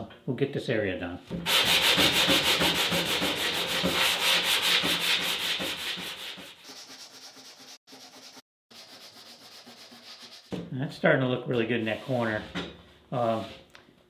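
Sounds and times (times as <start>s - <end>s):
sandpaper rubbing on wood: 1.5s - 10.5s.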